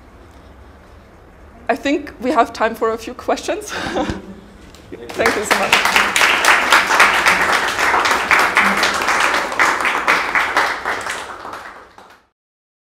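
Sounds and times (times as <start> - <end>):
audience applause: 5.0 - 12.3.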